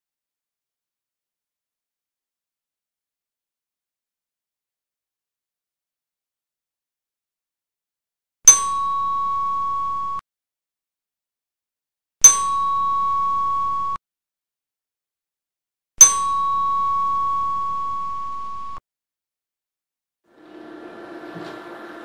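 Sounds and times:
bell-like dings: 8.5s - 10.2s, 12.2s - 14.0s, 16.0s - 18.1s.

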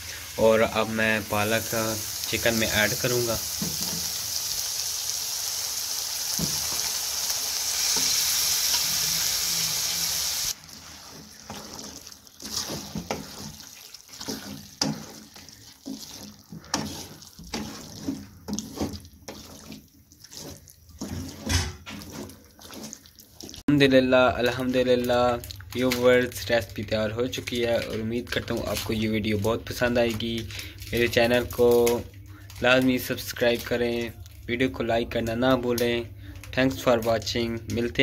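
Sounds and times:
chicken sizzling in oil: 0.0s - 32.0s
wooden spatula scraping pan: 10.6s - 23.6s.

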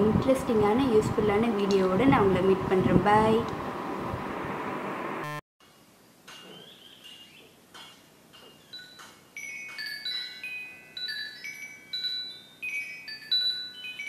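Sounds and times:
metal tube wind chime ringing: 8.4s - 14.0s.

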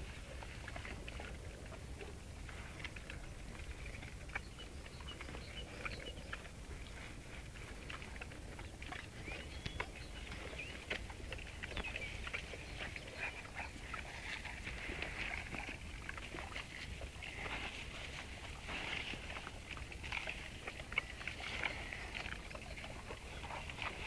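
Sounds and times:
dogs chewing grass: 0.0s - 24.0s
dogs snuffling: 2.0s - 24.0s.

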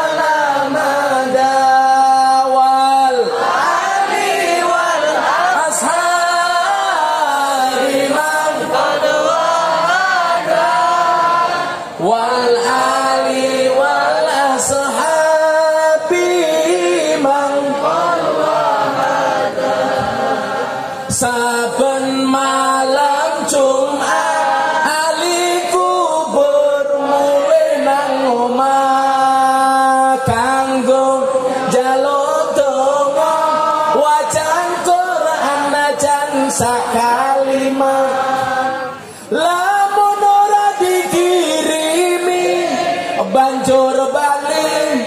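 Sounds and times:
man chanting devotional song: 0.0s - 3.5s, 12.0s - 18.1s, 21.0s - 45.0s
many voices singing: 0.0s - 45.0s.

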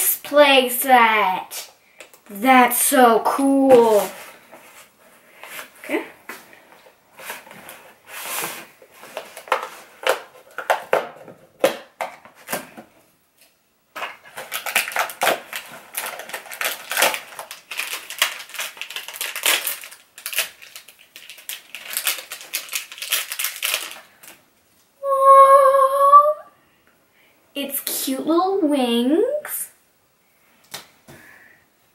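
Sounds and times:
packaging crinkling and rustling: 3.7s - 12.9s, 13.9s - 24.4s.

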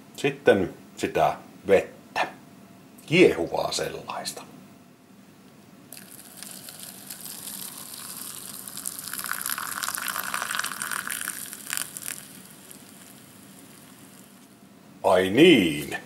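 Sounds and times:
boiling water pouring into cup: 5.9s - 14.6s.

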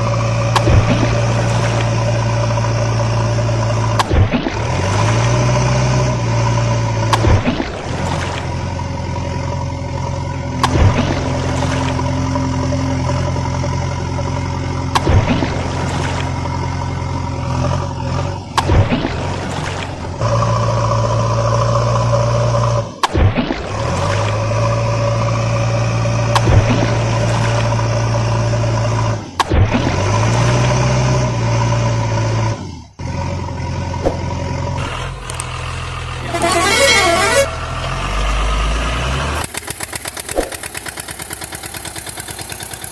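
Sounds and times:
truck engine: 0.0s - 42.9s
truck horn: 36.1s - 38.4s
fast rhythmic engine clatter: 39.4s - 42.9s.

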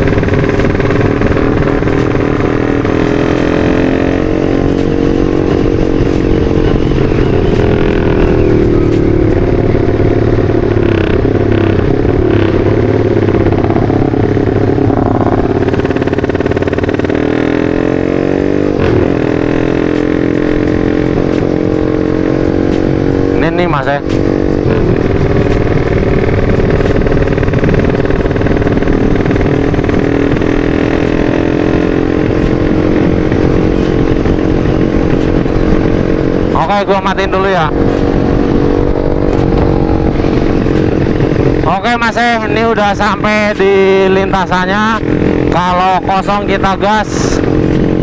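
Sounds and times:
motorcycle engine running: 0.0s - 48.0s
wind rush: 20.9s - 48.0s.

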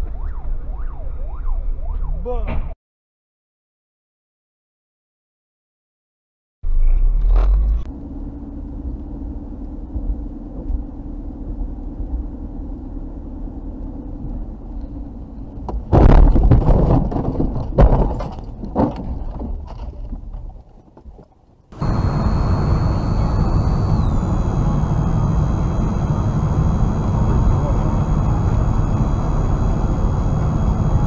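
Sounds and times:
car road and engine noise: 7.2s - 20.5s, 21.7s - 31.0s.

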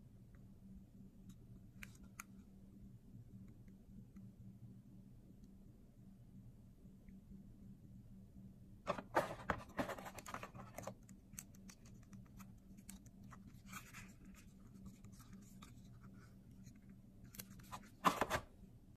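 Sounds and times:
low steady hum: 0.0s - 18.9s
plastic handling scrapes and clicks: 8.9s - 18.5s.

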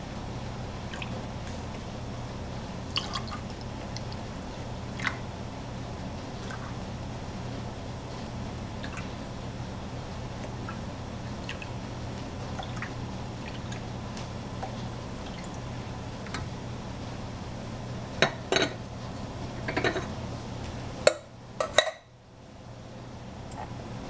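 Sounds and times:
milk trickling into jars: 2.9s - 4.3s.

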